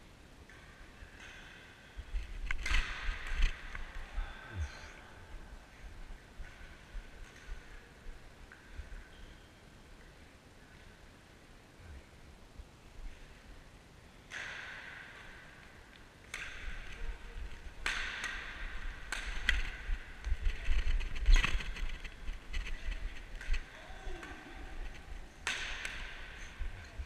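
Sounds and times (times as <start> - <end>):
rackets striking shuttlecock: 17.8 - 20.2, 25.4 - 26.6.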